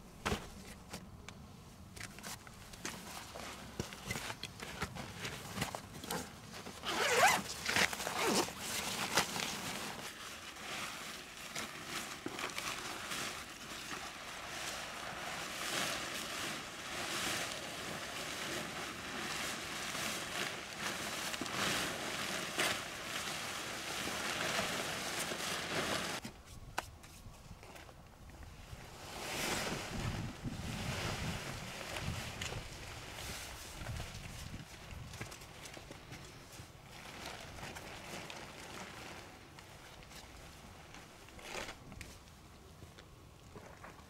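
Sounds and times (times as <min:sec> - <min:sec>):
tent fabric rustling: 0:02.0 - 0:27.8, 0:28.6 - 0:42.2
zipper pulled open: 0:06.8 - 0:08.8.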